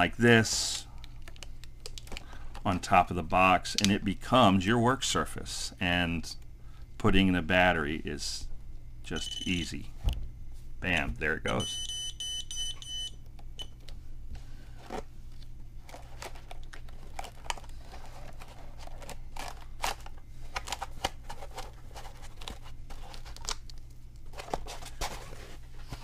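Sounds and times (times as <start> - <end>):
steady low hum: 0.0 - 26.0
hands clicking and rustling: 1.0 - 2.7.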